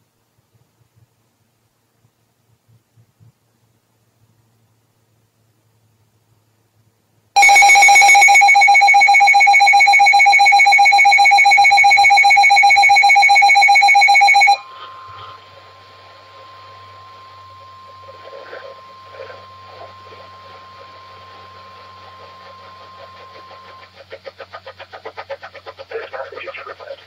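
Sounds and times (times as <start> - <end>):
pulsing electronic alert alarm: 7.4 - 15.4
steady warning tone: 7.4 - 23.9
radio hiss: 14.7 - 27.0.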